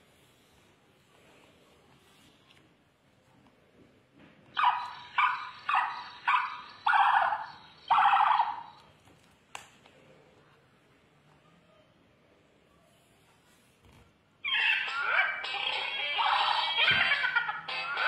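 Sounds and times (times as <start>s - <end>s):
tinny electronic bird chirping: 4.6s - 8.9s.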